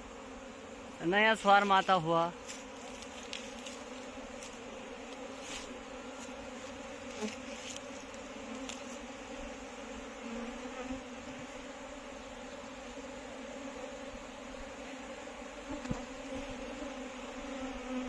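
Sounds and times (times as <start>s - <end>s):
bee swarm buzzing: 0.0s - 18.0s.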